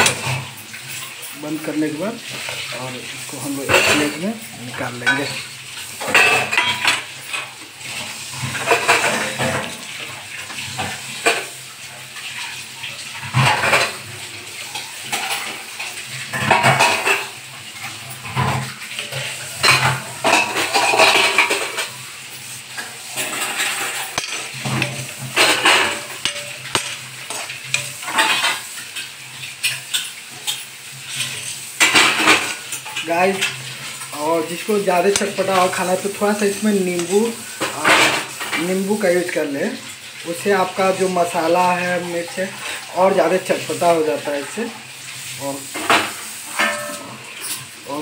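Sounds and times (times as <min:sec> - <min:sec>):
metal skimmer scraping a pan: 0:12.2 - 0:39.4, 0:45.7 - 0:48.0.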